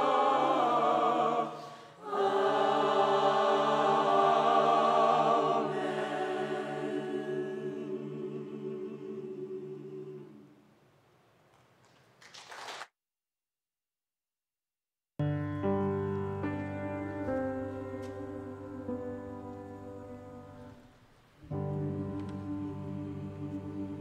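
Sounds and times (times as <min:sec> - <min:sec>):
choir singing sustained chords: 0:00.0 - 0:10.8, 0:16.4 - 0:24.0.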